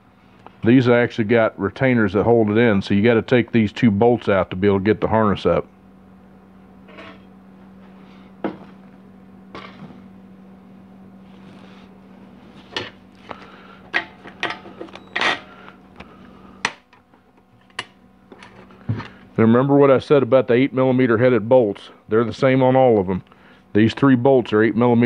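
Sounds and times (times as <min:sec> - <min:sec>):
low hum: 0:00.0 - 0:22.2.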